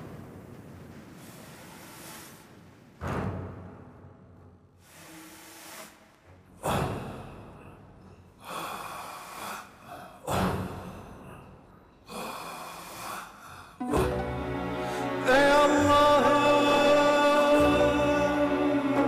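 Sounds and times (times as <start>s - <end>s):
heavy breathy exhalations: 6.5s - 14.2s.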